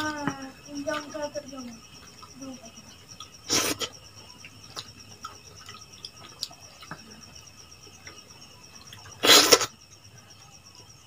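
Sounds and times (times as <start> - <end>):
insect trill: 0.0 - 11.0
mouth chewing and smacking: 3.0 - 9.8.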